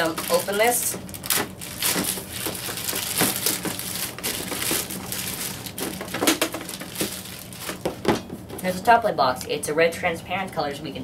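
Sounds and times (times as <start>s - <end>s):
plastic wrapping crinkling: 0.0s - 8.4s.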